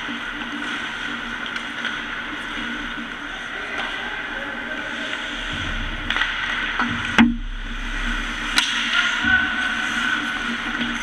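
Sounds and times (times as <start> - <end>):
hockey sticks and puck clacking: 0.0 - 4.0, 6.0 - 7.4, 8.2 - 11.0.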